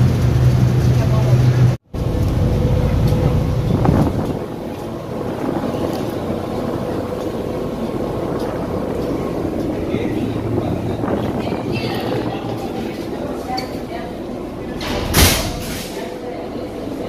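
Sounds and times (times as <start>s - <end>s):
ship engines rumbling: 0.0s - 17.0s
wind blowing on microphone: 2.0s - 13.4s.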